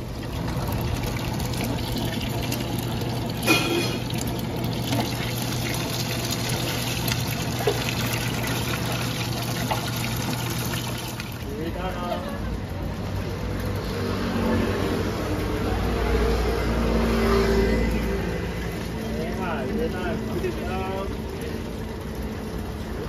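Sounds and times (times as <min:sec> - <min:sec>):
oil sizzling and bubbling: 0:00.0 - 0:12.1, 0:17.4 - 0:23.0.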